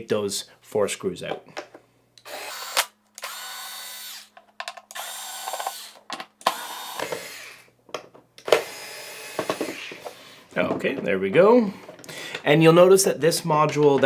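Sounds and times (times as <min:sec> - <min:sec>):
electric screwdriver motor whine: 0:02.2 - 0:04.3, 0:04.9 - 0:07.7, 0:08.4 - 0:10.1.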